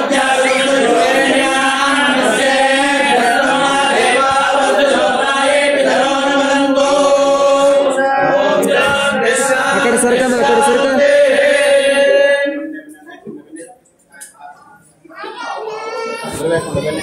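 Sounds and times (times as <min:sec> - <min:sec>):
group chanting: 0:00.0 - 0:12.8.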